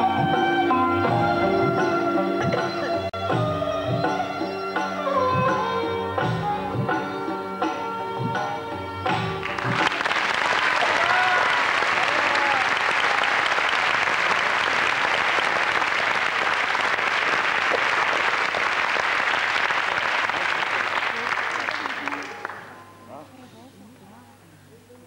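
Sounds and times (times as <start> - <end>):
sitar dance music: 0.0 - 9.9
audience applauding: 9.4 - 22.8
audience calls: 9.4 - 23.0.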